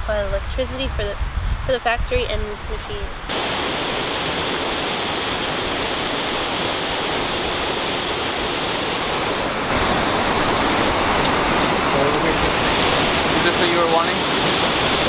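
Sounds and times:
waterfall and river rushing: 3.3 - 15.0.

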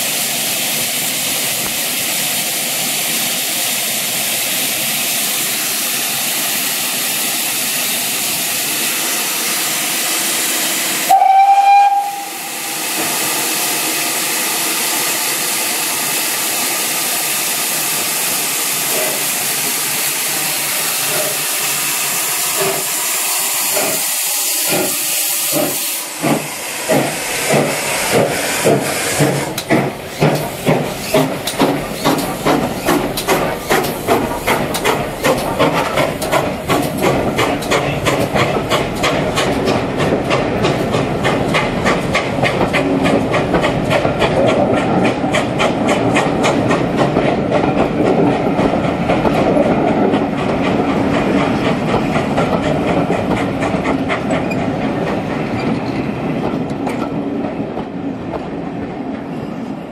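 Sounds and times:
steam hissing: 0.0 - 43.9
steam locomotive exhaust chuffs: 0.0 - 55.8
steam whistle blast: 11.0 - 12.8.

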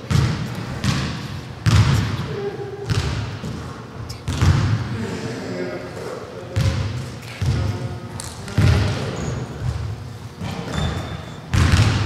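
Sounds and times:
basketball bouncing on wooden floor: 0.1 - 2.1, 2.9 - 3.6, 4.3 - 4.8, 9.6 - 12.0.

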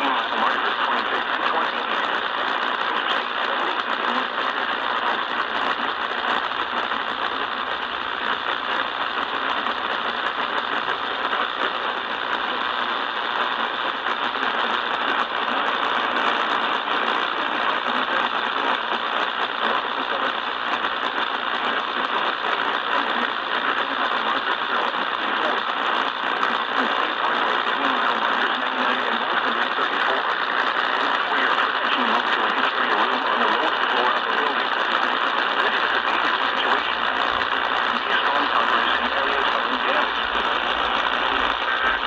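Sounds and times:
radio static hiss: 0.0 - 42.0.

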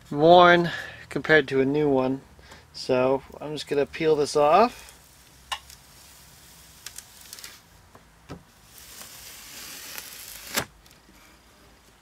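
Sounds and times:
sandpaper peeling off: 5.1 - 7.6, 8.6 - 10.7.

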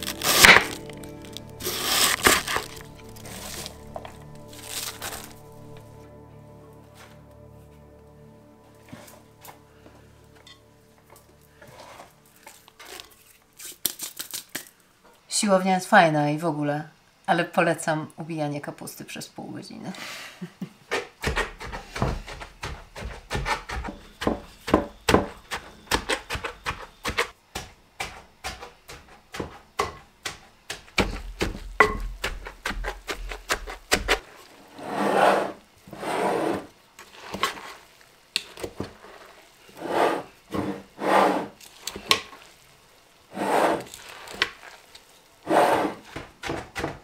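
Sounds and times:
tamper pounding cabbage: 0.0 - 5.4, 20.9 - 34.2, 45.9 - 47.0
cabbage rubbing: 0.0 - 5.8, 43.3 - 44.9.

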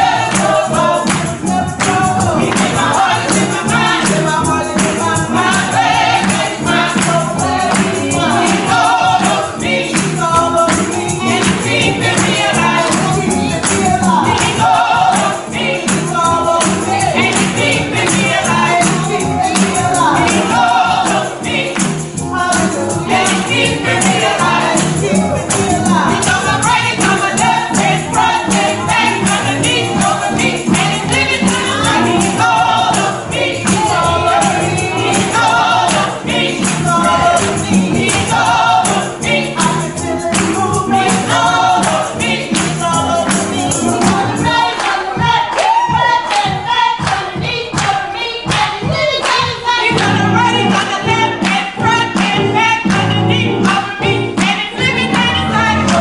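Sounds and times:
women's gospel choir singing: 0.0 - 56.0
hand claps: 0.1 - 53.8, 54.4 - 56.0.

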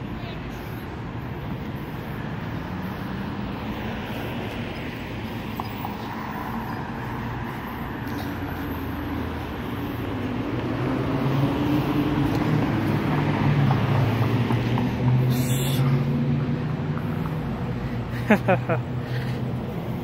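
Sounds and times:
road traffic engine hum: 0.0 - 20.0.

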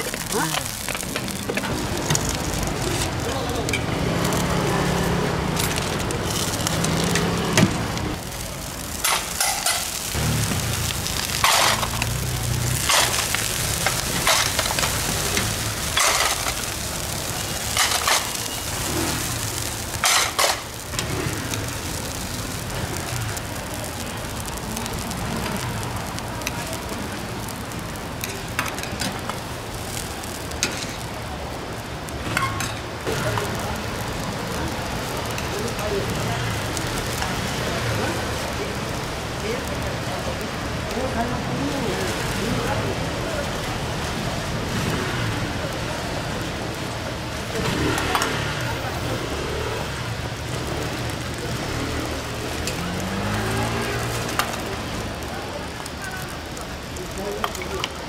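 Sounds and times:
oil sizzling on a griddle: 0.0 - 58.0
metal clanks of tongs and lids: 9.0 - 10.0, 15.9 - 16.6, 20.0 - 20.6.

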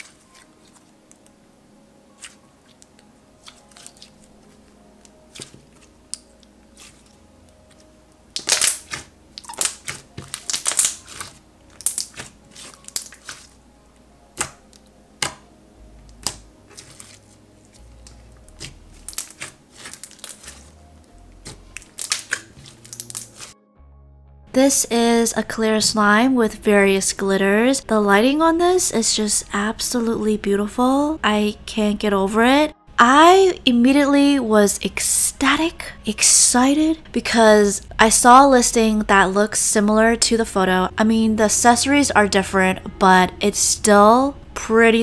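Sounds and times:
faint background music: 0.0 - 45.0
slime squished by hand: 5.3 - 13.6, 16.1 - 20.8, 21.4 - 23.5.

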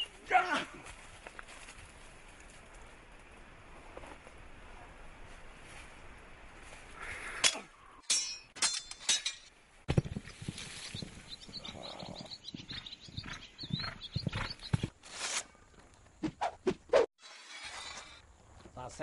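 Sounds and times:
horse hooves thudding: 9.9 - 15.0.

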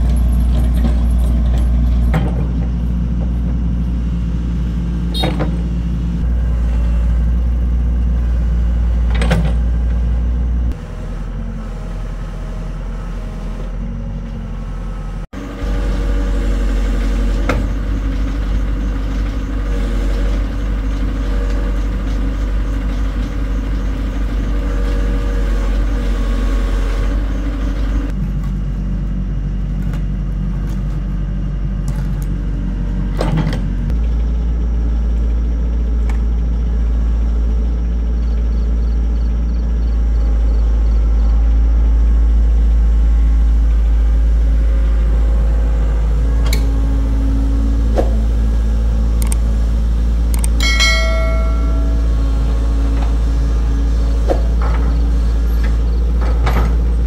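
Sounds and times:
diesel engine droning: 0.0 - 57.0
sharp metal clanks: 50.6 - 52.7.

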